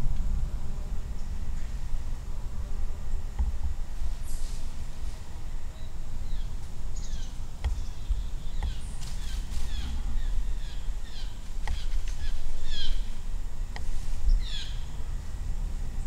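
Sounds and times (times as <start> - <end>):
steady low rumble: 0.0 - 16.0
small birds chirping: 4.2 - 15.0.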